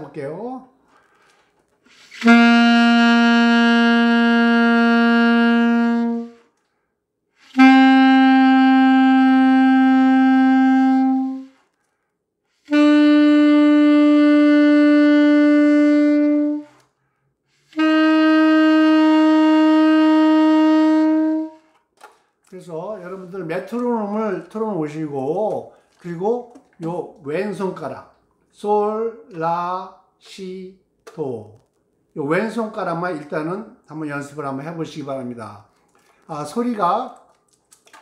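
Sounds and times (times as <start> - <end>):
saxophone long notes: 1.9 - 6.6, 7.3 - 11.7, 12.6 - 21.8.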